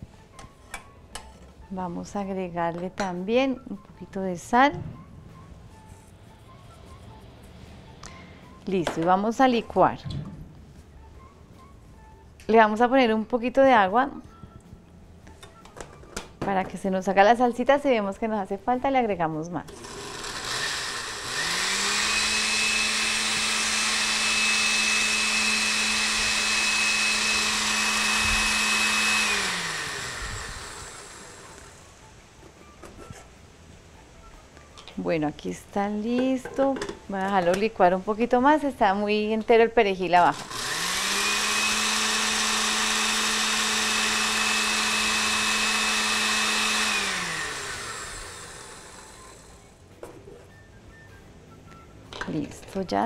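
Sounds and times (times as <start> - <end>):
blender motor humming and whining: 19.7 - 31.9, 40.2 - 49.7.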